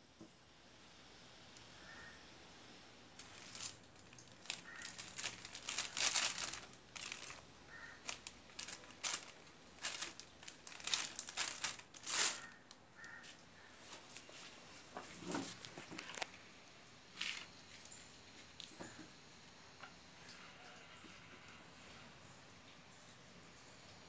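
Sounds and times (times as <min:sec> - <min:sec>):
insulating strips crinkling: 0:03.2 - 0:16.4, 0:17.1 - 0:18.7.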